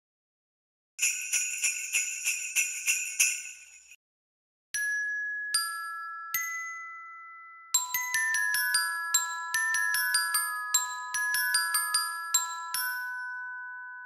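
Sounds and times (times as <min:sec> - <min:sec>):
sleigh bells shaken: 0:01.0 - 0:04.0, 0:07.8 - 0:13.8
single bell notes ringing: 0:12.0 - 0:14.0.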